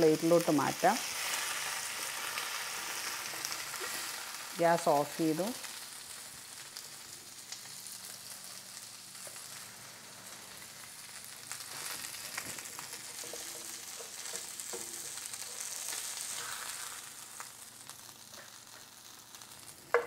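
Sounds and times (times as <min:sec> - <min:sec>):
fish sizzling in hot oil: 0:00.0 - 0:20.0
spatula scraping a pan: 0:11.7 - 0:17.0.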